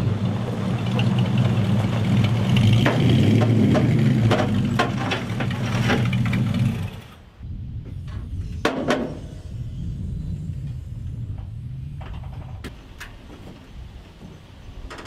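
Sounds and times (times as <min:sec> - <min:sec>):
clicks and clacks: 0:00.9 - 0:06.5.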